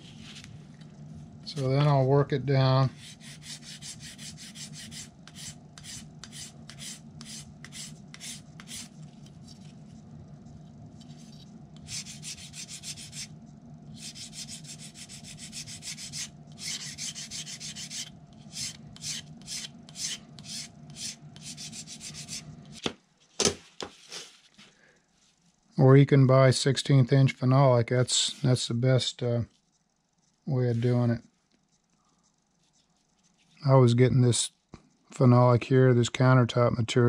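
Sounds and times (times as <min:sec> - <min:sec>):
steady low hum: 0:00.0 - 0:37.0
sanding edge by hand: 0:03.0 - 0:08.9, 0:11.8 - 0:13.3, 0:14.0 - 0:22.4.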